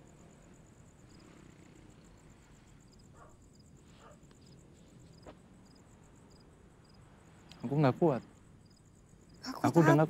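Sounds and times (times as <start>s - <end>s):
faint crickets chirping: 0.0s - 10.0s.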